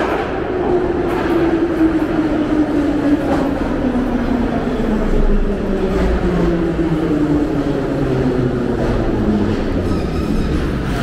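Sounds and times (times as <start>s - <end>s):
wheels rumbling on rail: 0.0s - 11.0s.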